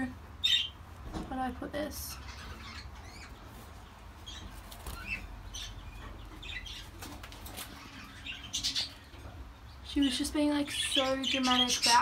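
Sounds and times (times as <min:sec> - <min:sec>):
budgerigars fluttering in cage: 0:02.5 - 0:08.9.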